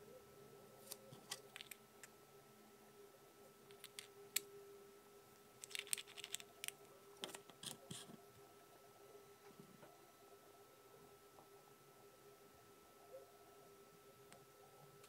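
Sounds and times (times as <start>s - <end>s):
faint steady hum: 0.0s - 15.0s
plastic parts clicking: 0.9s - 1.8s, 3.7s - 4.5s, 5.6s - 7.8s.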